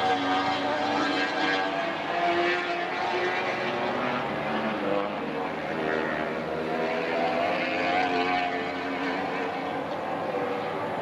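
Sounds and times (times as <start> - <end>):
aircraft propellers and engine: 3.0 - 11.0.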